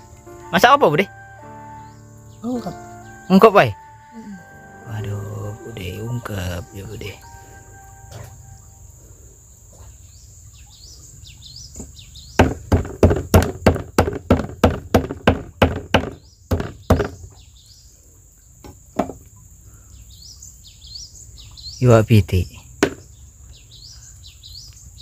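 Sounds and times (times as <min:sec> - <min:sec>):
high insect drone: 0:00.0 - 0:11.7
birds chirping: 0:00.0 - 0:13.0, 0:15.8 - 0:25.0.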